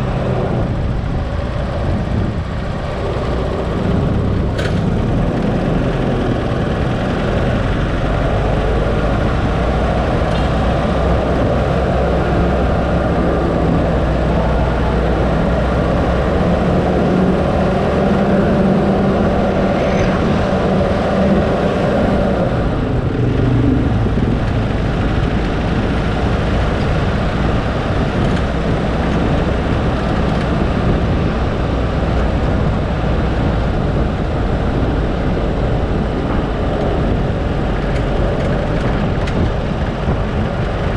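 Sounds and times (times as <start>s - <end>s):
road noise: 0.0s - 40.9s
vehicle engine: 0.0s - 40.9s.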